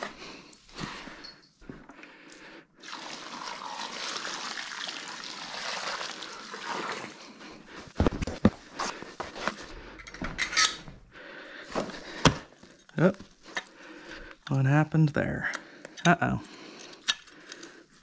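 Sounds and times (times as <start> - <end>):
water pouring from bucket: 2.8 - 7.2.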